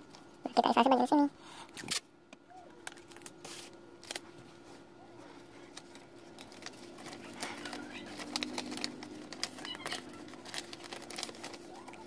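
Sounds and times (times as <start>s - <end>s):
paper rustling and crackling: 2.9s - 12.0s.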